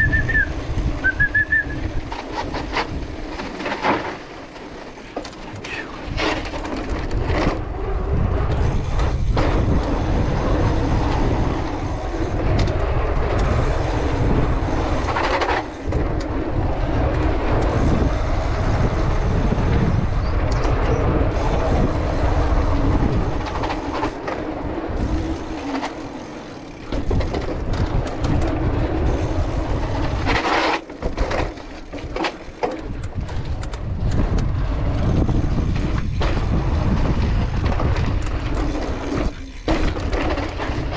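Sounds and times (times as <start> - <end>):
bike tyres rumbling on dirt: 0.0 - 40.9
bike parts rattling: 1.8 - 18.3, 19.8 - 34.5, 35.3 - 40.9
bike knocking over bumps: 23.1 - 40.9.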